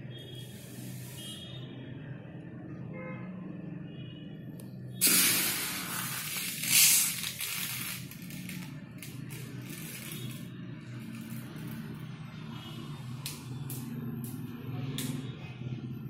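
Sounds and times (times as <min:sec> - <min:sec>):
seeds rustling and trickling: 0:05.0 - 0:10.5.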